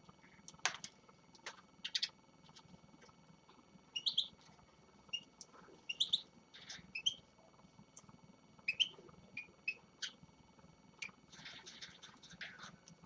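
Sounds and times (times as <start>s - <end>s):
finches chirping: 1.8s - 2.2s, 3.9s - 4.4s, 5.1s - 7.3s, 8.6s - 10.2s, 11.0s - 12.8s.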